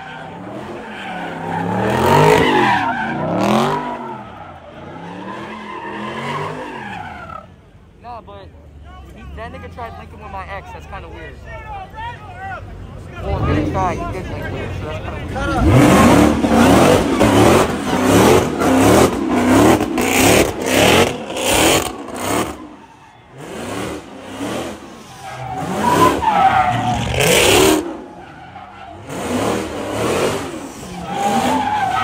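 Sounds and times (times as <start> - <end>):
tyres squealing: 0.0 - 7.5, 15.4 - 32.0
car engine revving: 0.2 - 4.2, 13.2 - 32.0.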